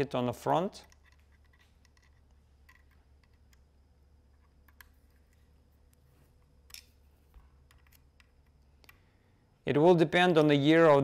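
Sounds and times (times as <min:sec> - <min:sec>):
low steady hum: 0:00.0 - 0:11.0
allen wrench clicks: 0:00.8 - 0:03.6.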